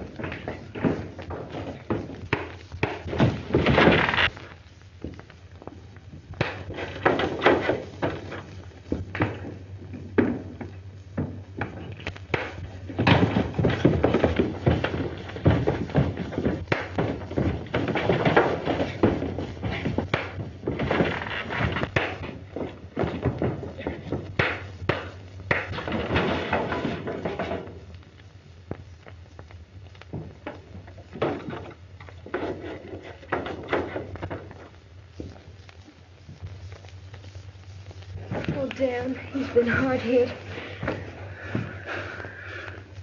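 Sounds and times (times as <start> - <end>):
steady low hum: 0.0 - 43.0
punches and heavy thumps: 6.4 - 27.8
scuffling feet: 28.6 - 43.0.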